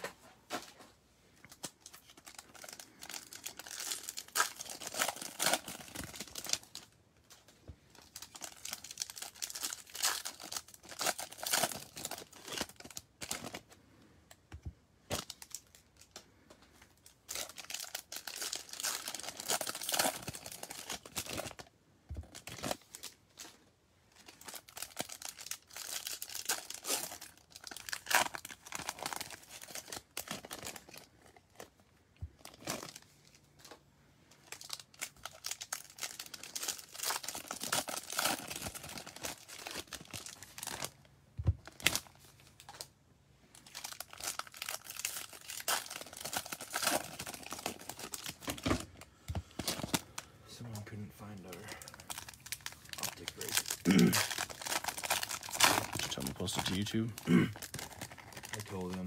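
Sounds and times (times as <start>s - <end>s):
foil wrappers tearing and crinkling: 1.5s - 6.9s, 8.0s - 13.6s, 17.1s - 21.7s, 24.2s - 31.7s, 34.4s - 41.0s, 43.6s - 50.2s, 51.2s - 59.0s.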